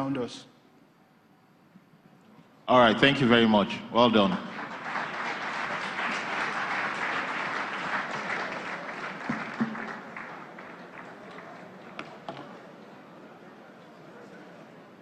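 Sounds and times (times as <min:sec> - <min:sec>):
audience applauding: 0:04.4 - 0:12.7.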